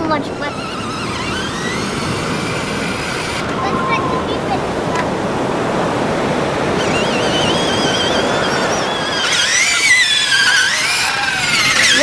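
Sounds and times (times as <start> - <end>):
toy truck motor whining: 0.0 - 4.3, 6.8 - 12.0.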